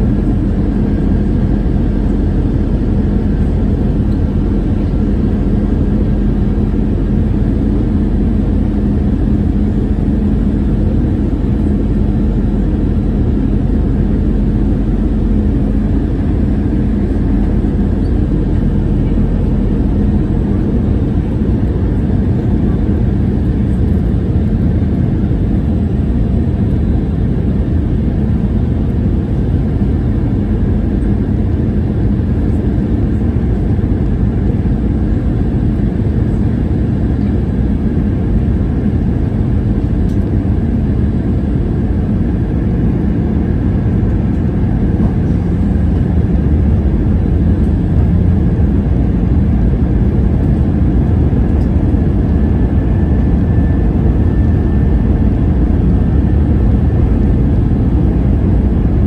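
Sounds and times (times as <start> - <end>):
airplane cabin noise: 0.0 - 59.0.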